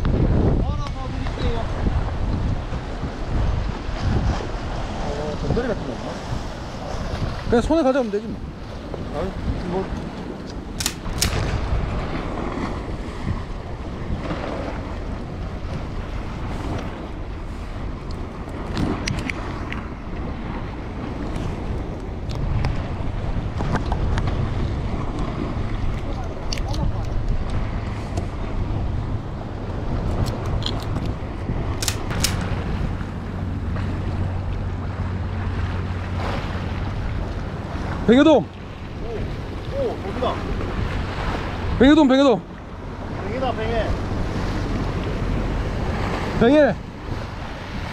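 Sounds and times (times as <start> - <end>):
sea waves washing: 0.0 - 47.9
wind buffeting microphone: 0.0 - 47.9
sharp click: 10.5 - 11.6, 31.8 - 32.5.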